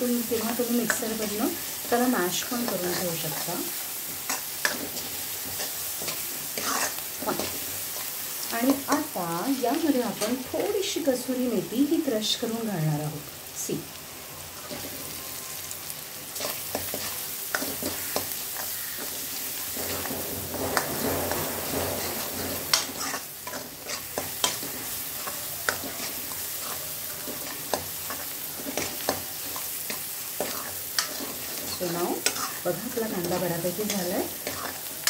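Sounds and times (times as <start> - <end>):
onions sizzling in a pan: 0.0 - 35.0
ladle scraping a metal pan: 19.7 - 24.6.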